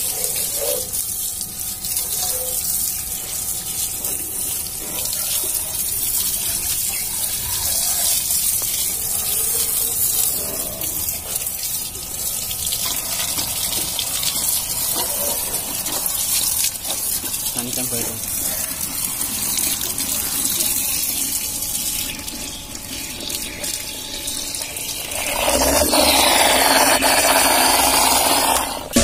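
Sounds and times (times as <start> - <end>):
water jet spraying hiss: 24.4 - 29.0.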